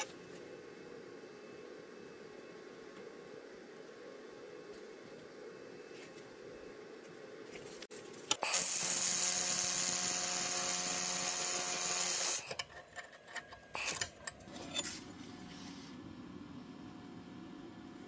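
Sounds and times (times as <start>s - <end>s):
laser welder hissing: 8.4s - 12.4s.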